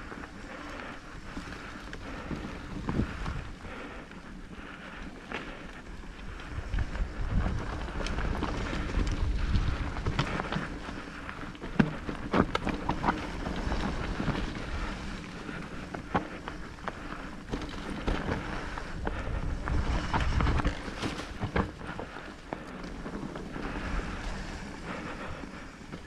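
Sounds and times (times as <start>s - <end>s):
wind on microphone: 6.4s - 10.9s, 18.4s - 21.6s.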